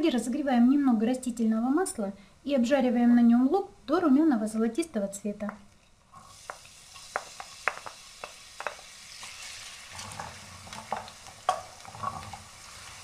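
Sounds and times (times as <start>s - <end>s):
wooden spoon tapping and scraping: 5.5s - 8.9s, 10.0s - 12.5s
onion sizzling in oil: 6.1s - 13.0s.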